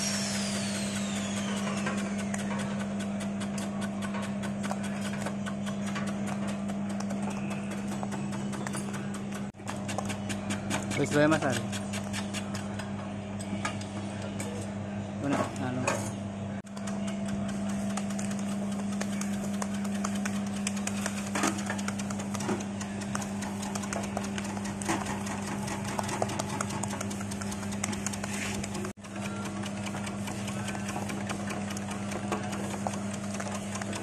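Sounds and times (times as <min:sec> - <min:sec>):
motor hum: 0:00.0 - 0:15.4, 0:16.6 - 0:34.0.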